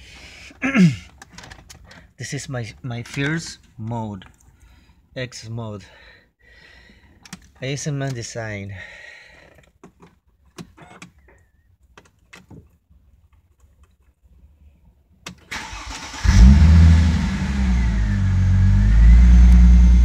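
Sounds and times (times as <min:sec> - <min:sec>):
car engine starting and idling: 0:15.5 - 0:20.0.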